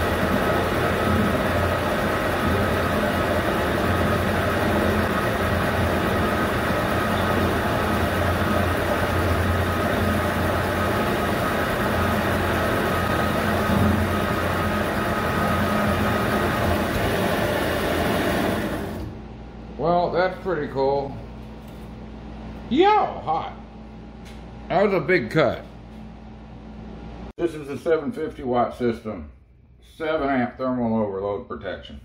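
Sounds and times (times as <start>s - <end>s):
metal lathe cutting: 0.0s - 19.1s
thin steady whine: 0.0s - 27.3s.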